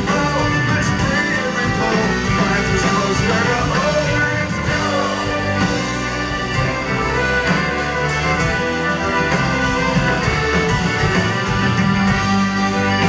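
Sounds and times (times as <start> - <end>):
person singing: 0.0 - 6.0
accordion: 0.0 - 13.0
drums: 0.0 - 13.0
electric guitar: 0.0 - 13.0.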